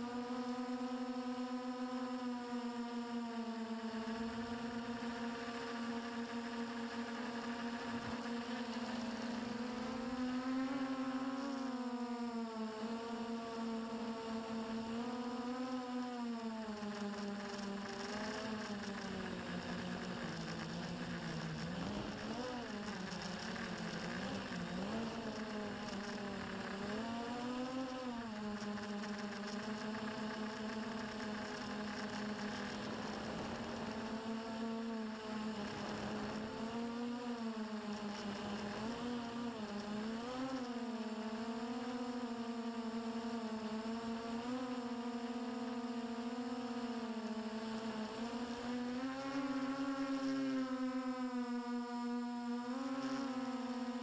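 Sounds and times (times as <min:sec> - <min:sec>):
drone motors and propellers buzzing: 0:00.0 - 0:54.0.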